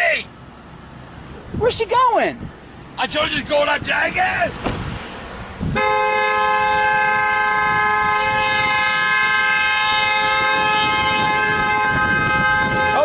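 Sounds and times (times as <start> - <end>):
car horn long blast: 5.7 - 13.0.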